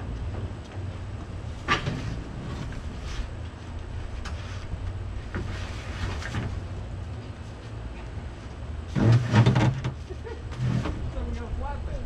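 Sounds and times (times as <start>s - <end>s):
steady low rumble: 0.0s - 9.2s, 9.9s - 12.0s
metal hood scraping grind: 8.8s - 11.2s.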